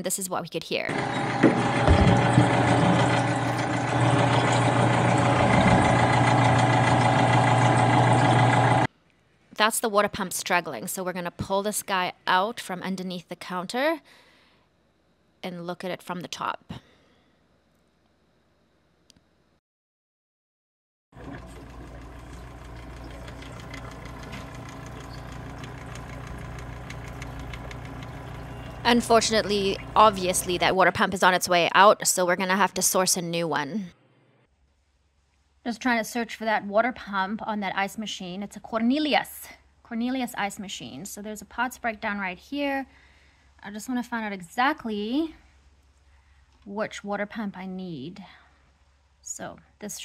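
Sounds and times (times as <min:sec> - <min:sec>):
water pump humming: 0:00.9 - 0:08.9, 0:21.2 - 0:30.7.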